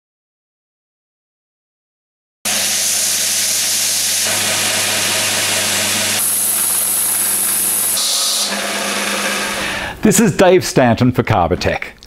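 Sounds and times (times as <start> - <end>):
sander motor hum: 2.5 - 9.8
wood sanding hiss: 2.5 - 10.0.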